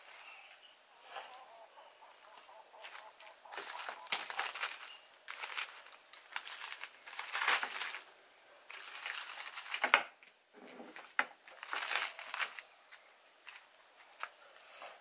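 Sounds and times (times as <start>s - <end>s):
aluminium foil crinkling: 2.8s - 8.1s, 8.7s - 10.3s, 10.9s - 14.4s.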